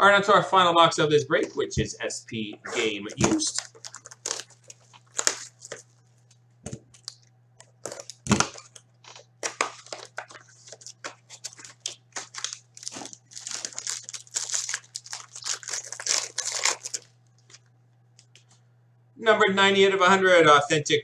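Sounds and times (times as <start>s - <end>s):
plastic wrapper crinkling and tearing: 3.1s - 6.1s, 6.8s - 17.7s.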